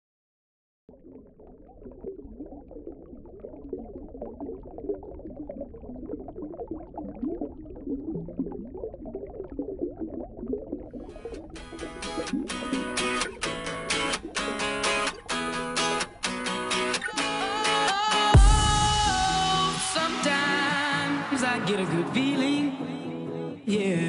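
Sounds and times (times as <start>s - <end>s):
underwater bubbling: 0.9s - 18.2s
strummed guitar: 11.5s - 24.0s.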